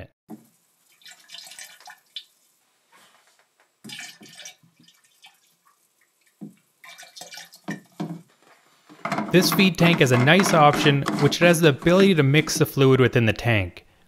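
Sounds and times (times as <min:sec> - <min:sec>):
liquid pouring and splashing: 0:00.3 - 0:02.6, 0:03.8 - 0:08.3.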